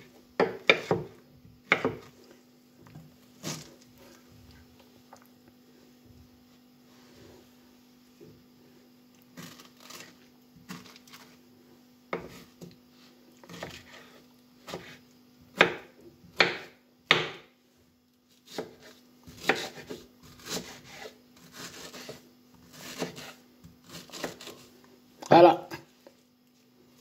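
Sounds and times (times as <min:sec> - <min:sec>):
faint steady hum: 0:00.0 - 0:27.0
knife cutting on wooden board: 0:13.4 - 0:15.0, 0:18.5 - 0:24.7.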